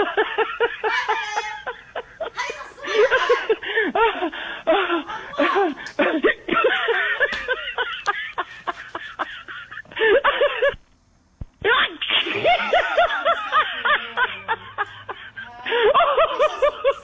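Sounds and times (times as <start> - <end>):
people laughing: 0.0 - 10.8, 11.7 - 17.0
people talking animatedly: 2.4 - 3.9.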